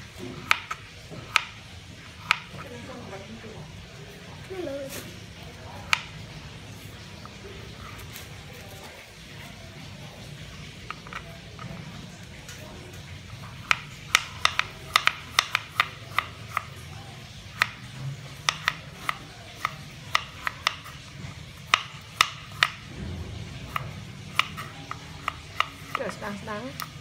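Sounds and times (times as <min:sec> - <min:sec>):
knife tapping on cutting board: 0:00.4 - 0:01.6, 0:02.2 - 0:02.6, 0:13.6 - 0:16.7, 0:18.4 - 0:21.0, 0:21.6 - 0:22.8, 0:23.7 - 0:27.0.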